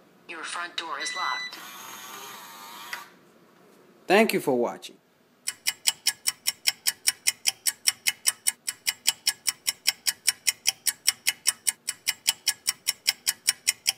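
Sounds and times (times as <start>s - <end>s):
rapid even ticking: 5.5s - 13.9s.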